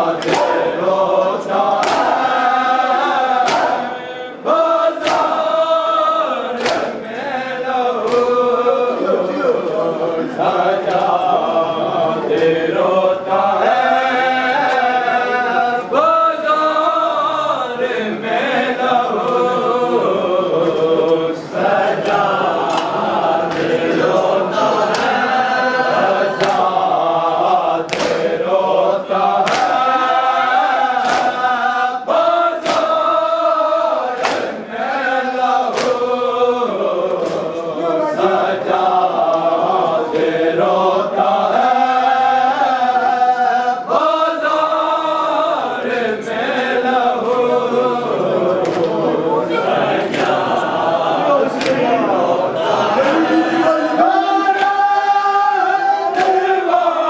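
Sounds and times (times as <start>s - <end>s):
group chanting: 0.0s - 57.0s
hands slapping chests: 0.2s - 0.7s, 1.6s - 2.4s, 3.3s - 3.9s, 5.0s - 5.5s, 6.6s - 7.0s, 8.0s - 8.5s, 22.0s - 23.8s, 24.8s - 25.2s, 26.3s - 26.8s, 27.8s - 28.4s, 29.2s - 30.0s, 30.9s - 31.5s, 32.6s - 33.1s, 34.1s - 34.6s, 35.6s - 36.1s, 37.0s - 37.6s, 48.6s - 49.1s, 50.0s - 50.6s, 51.6s - 51.9s, 56.1s - 56.6s.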